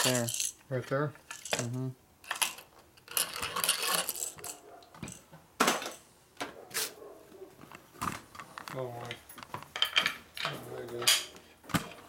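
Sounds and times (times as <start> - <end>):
metal tools clinking on workbench: 0.0 - 0.6, 1.3 - 6.0, 9.8 - 11.3.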